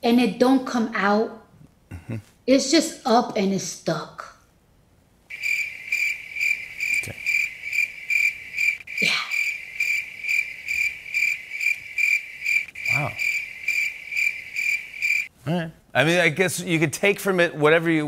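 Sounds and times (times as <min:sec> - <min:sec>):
crickets chirping: 0:05.3 - 0:15.3.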